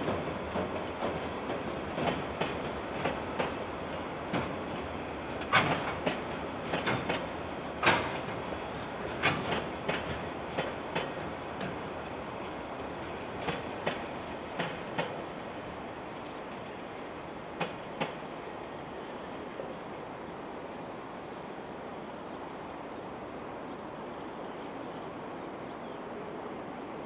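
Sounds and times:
train wheels rolling on rails: 0:00.0 - 0:19.9.

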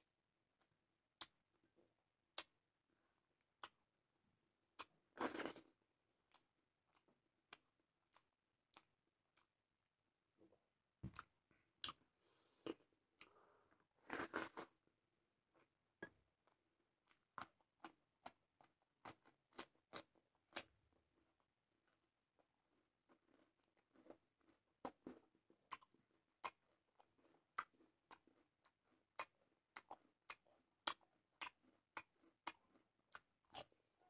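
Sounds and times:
chewing: 0:03.6 - 0:03.9, 0:04.7 - 0:09.6, 0:11.1 - 0:12.0, 0:15.6 - 0:34.0.

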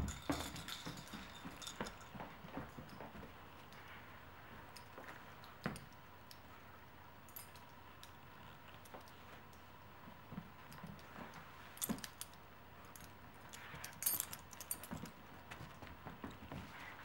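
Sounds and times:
collar tags jingling: 0:00.0 - 0:03.1
dogs shuffling on carpet: 0:15.4 - 0:17.0.

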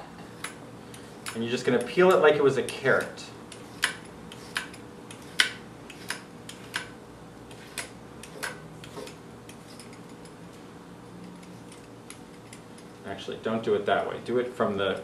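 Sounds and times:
vegetable peeler scraping: 0:01.7 - 0:06.8, 0:07.5 - 0:10.1.

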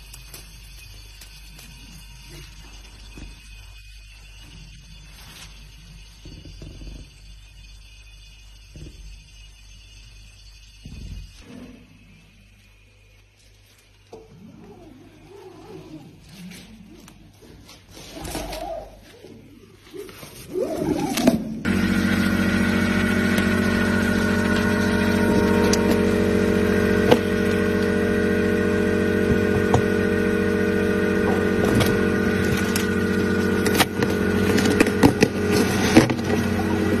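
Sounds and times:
motor droning: 0:21.2 - 0:37.0.

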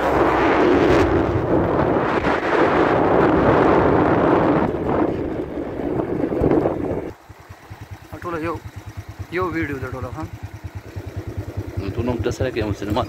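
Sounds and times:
wind buffeting microphone: 0:00.0 - 0:07.2
vehicle engine and road noise: 0:00.0 - 0:13.0.

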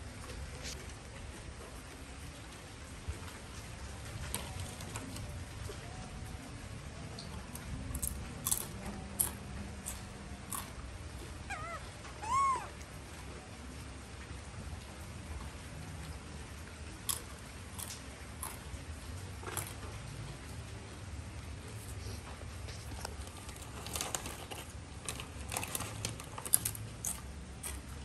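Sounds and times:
monkey warbling call: 0:11.4 - 0:12.8
monkey squeal: 0:11.5 - 0:12.7
clicks and knocks in cage: 0:22.7 - 0:28.0.

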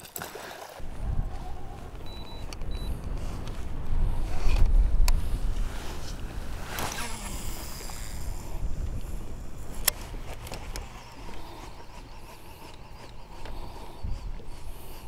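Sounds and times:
wind on microphone: 0:00.8 - 0:15.0.

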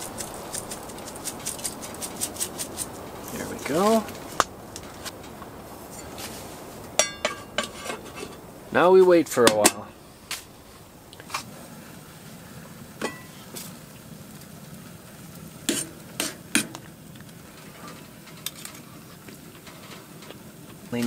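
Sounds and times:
faint hiss: 0:00.0 - 0:21.0
metal cookware clinking: 0:07.0 - 0:08.4, 0:09.4 - 0:10.0, 0:13.0 - 0:13.4.

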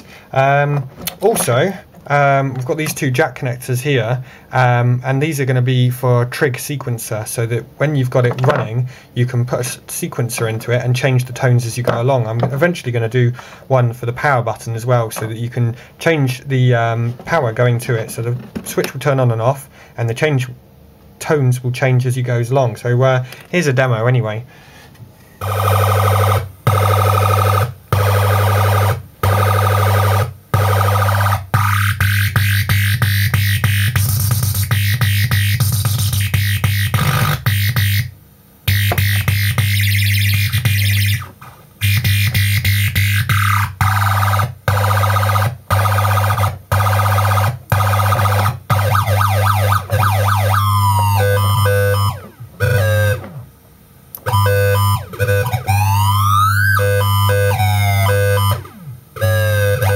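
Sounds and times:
harsh electronic tones: 0:25.4 - 0:38.1, 0:38.7 - 0:53.5, 0:54.2 - 0:59.9
steady low buzz: 0:25.4 - 0:59.9
warbling siren sweeps: 0:47.8 - 0:53.4, 0:54.3 - 0:59.9.

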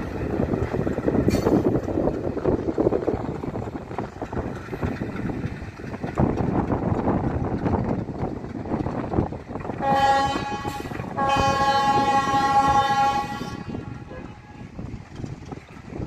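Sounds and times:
train engine and wheels rumbling: 0:00.0 - 0:16.0
locomotive horn blasts: 0:09.8 - 0:14.6.

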